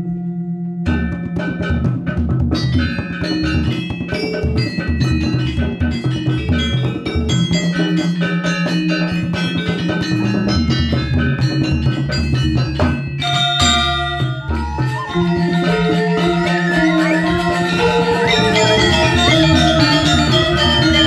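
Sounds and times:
bronze metallophones: 0.0s - 21.0s
hand drums: 0.9s - 21.0s
bamboo flutes: 13.4s - 21.0s.

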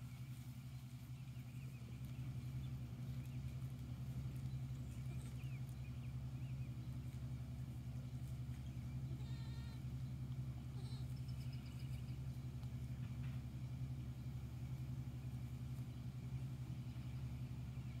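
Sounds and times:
low mechanical hum: 0.0s - 18.0s
bird chirps: 4.3s - 7.2s, 10.8s - 12.4s
goat bleating: 9.1s - 10.0s, 10.6s - 11.4s.

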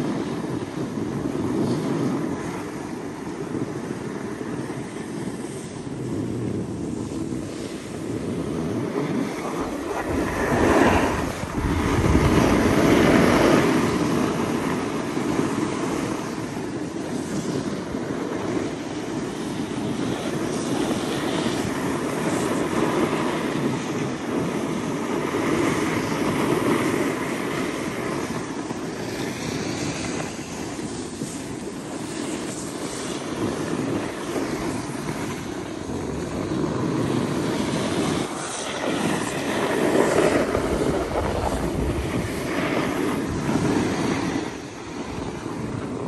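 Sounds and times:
snowboards scraping over snow: 0.0s - 46.0s
wind on microphone: 0.0s - 46.0s.

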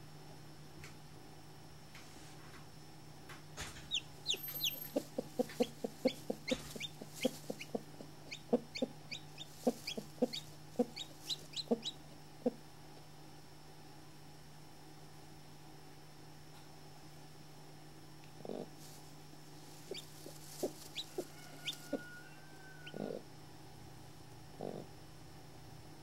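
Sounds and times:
chick peeping: 3.8s - 12.6s, 19.9s - 23.2s
hen clucking: 3.9s - 12.6s, 19.8s - 23.2s.

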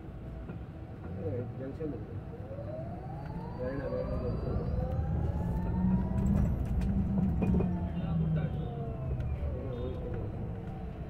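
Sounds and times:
road and tyre rumble: 0.0s - 11.0s
electric bus motor whining: 2.2s - 11.0s.

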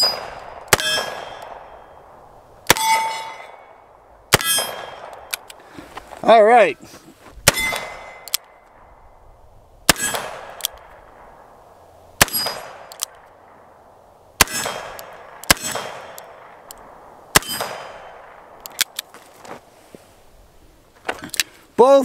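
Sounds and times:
metallic ringing: 2.7s - 3.8s.

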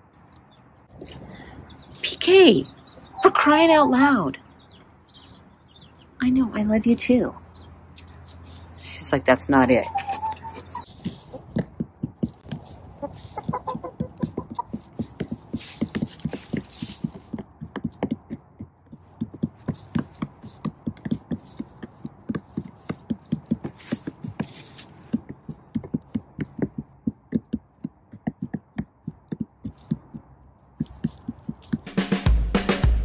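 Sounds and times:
hens pecking plastic tub: 9.8s - 32.0s.

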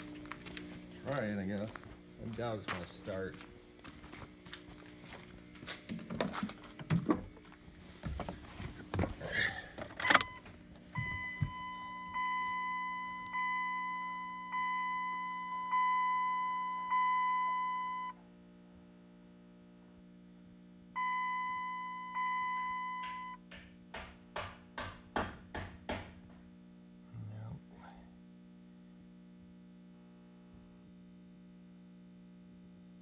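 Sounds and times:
faint steady hum: 0.0s - 24.9s, 25.5s - 33.0s
rustling and knocks: 5.6s - 9.2s
dashboard warning chime dings: 10.0s - 18.1s, 21.0s - 23.4s.

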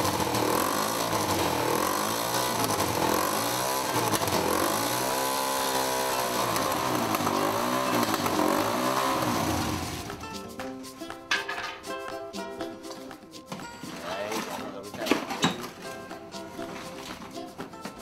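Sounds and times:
small motor rushing noise: 0.0s - 10.2s.

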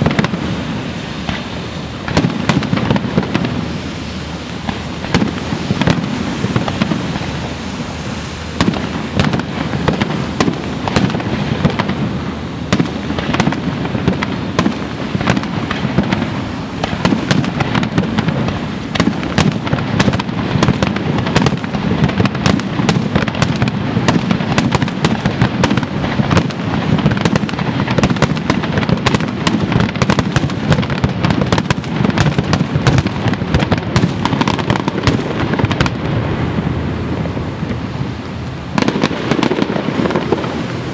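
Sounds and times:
crackling firework sparks: 0.0s - 40.9s
firework shells bursting: 38.8s - 40.9s.

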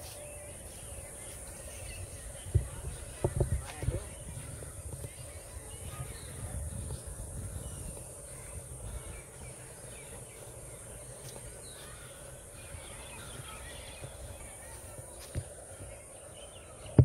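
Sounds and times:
bird chirps: 0.0s - 17.0s.

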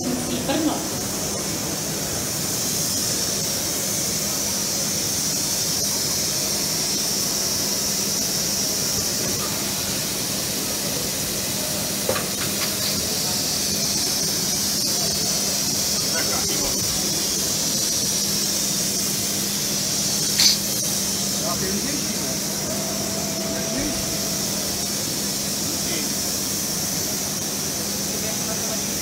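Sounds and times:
machinery high hiss: 0.0s - 29.0s
machinery low hum: 13.0s - 28.3s.

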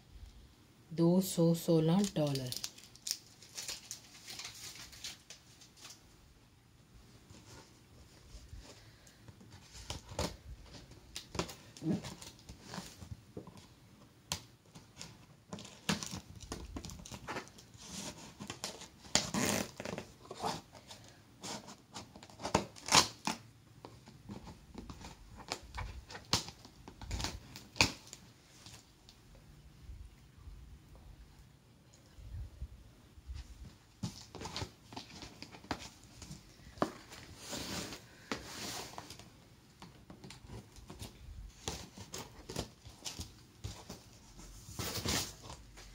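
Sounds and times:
cardboard packaging rustling and tearing: 1.9s - 6.1s, 9.5s - 13.7s, 14.3s - 23.4s, 24.0s - 28.9s, 33.9s - 39.3s, 40.2s - 45.9s.

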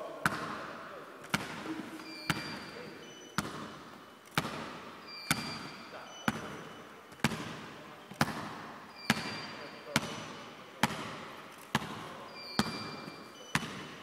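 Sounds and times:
basketball bouncing in a gym: 0.1s - 14.0s.

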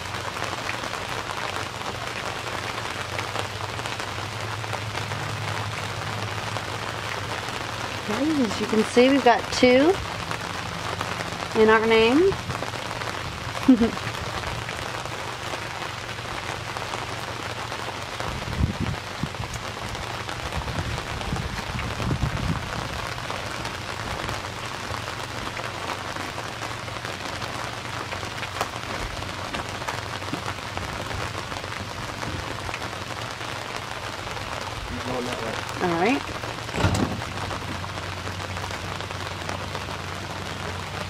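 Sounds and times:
rain on boat and water: 0.0s - 41.0s
low knocks: 36.7s - 37.8s.

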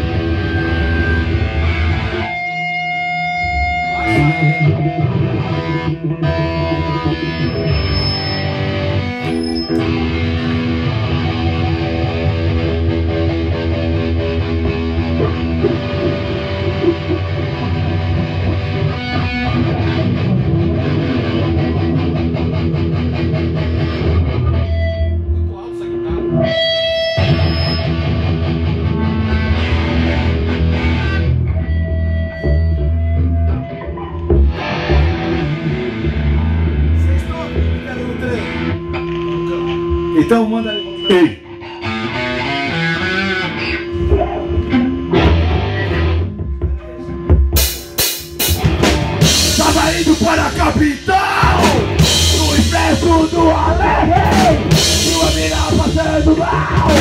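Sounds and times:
bass guitar: 0.0s - 57.0s
electric guitar through amplifier: 0.0s - 57.0s
rock band playing: 0.0s - 57.0s
drum kit with cymbal crashes: 46.6s - 57.0s.

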